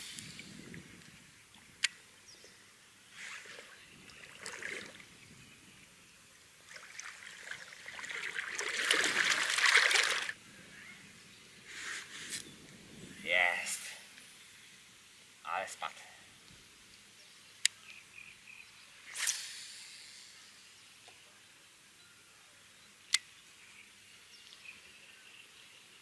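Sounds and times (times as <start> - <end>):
water splashing and sloshing: 3.2 - 5.2, 6.6 - 10.4.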